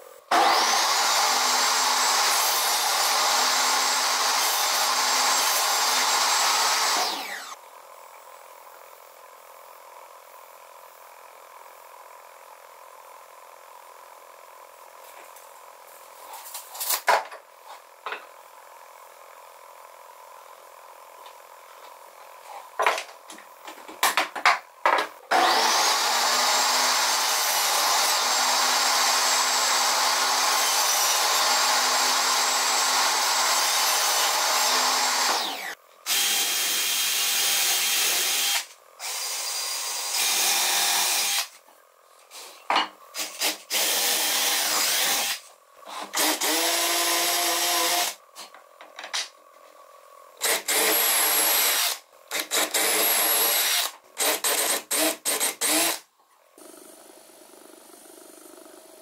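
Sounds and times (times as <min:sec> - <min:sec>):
cordless drill drilling into wood: 0:00.3 - 0:07.6, 0:25.3 - 0:41.6, 0:43.2 - 0:48.2, 0:50.4 - 0:56.0.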